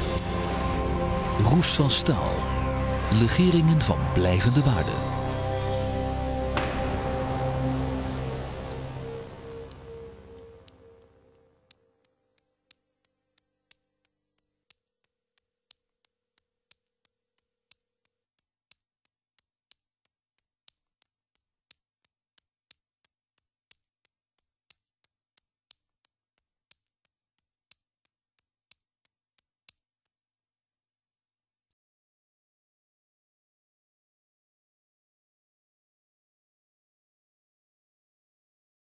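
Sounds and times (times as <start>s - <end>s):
soundtrack music: 0.0s - 11.7s
clock-like ticking: 8.7s - 13.1s, 13.7s - 14.1s, 15.7s - 16.1s, 16.7s - 16.9s, 18.6s - 20.8s, 21.6s - 28.8s.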